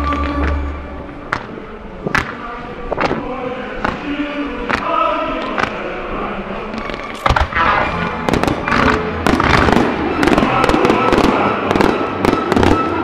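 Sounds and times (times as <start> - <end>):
music soundtrack: 0.0 - 13.0
fireworks bangs and cracks: 7.2 - 13.0.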